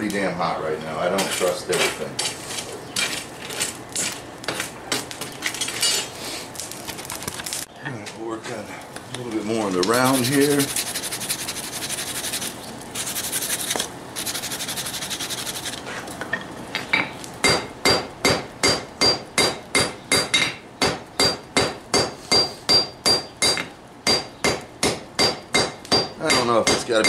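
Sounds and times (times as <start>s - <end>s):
rasping scrub: 9.9s - 15.9s
hammer ringing on anvil: 17.4s - 27.0s.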